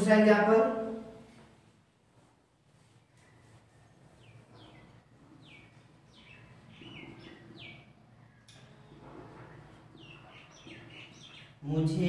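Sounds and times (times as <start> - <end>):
small bird chirping: 4.0 - 8.5, 10.0 - 11.6.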